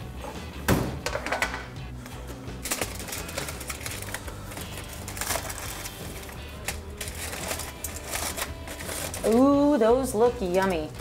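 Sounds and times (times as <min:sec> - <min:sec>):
soft background music: 0:00.0 - 0:11.0
aluminium foil crinkling: 0:02.6 - 0:11.0.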